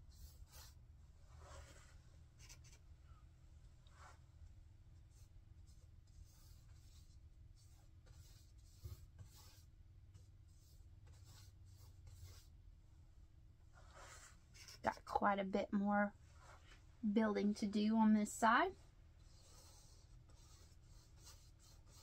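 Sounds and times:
paintbrush strokes on canvas: 0.0s - 2.8s, 5.0s - 12.6s, 13.7s - 15.1s, 16.3s - 16.8s, 18.8s - 22.0s
low steady hum: 0.0s - 21.6s.

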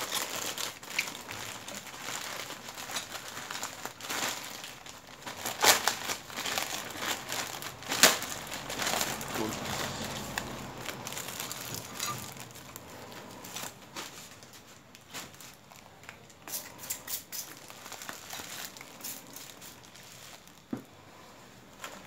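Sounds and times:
plastic and bubble wrap crinkling: 0.0s - 22.0s.

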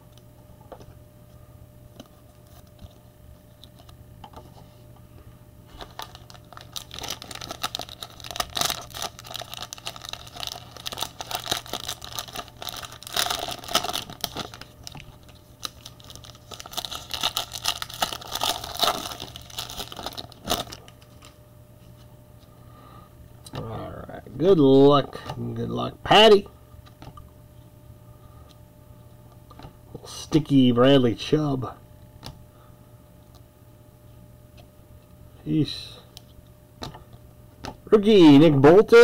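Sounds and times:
foil wrapper tearing and crinkling: 5.7s - 21.4s.

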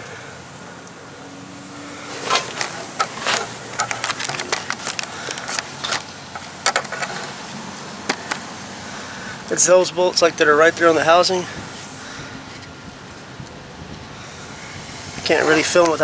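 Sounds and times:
camera handling clicks and scrapes: 2.2s - 7.3s.

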